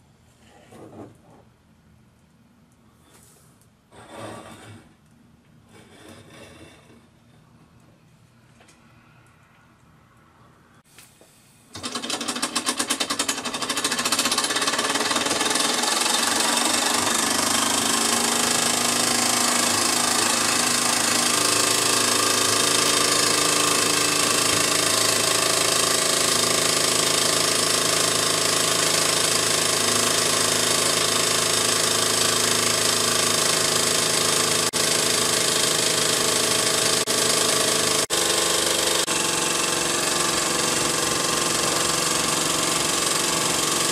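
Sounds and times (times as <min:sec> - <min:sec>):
toy steam engine running: 0:11.7 - 0:43.9.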